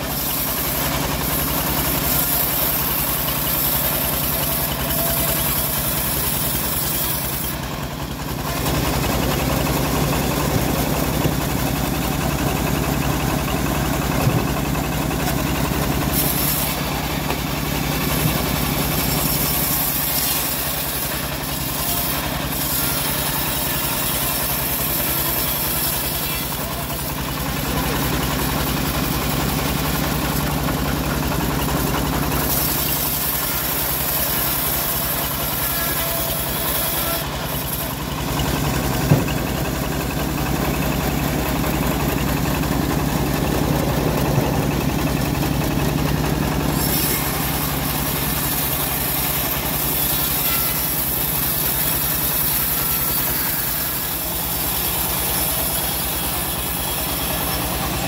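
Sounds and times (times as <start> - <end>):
sawmill engine running: 0.0 - 58.0
sharp knock: 39.0 - 39.6.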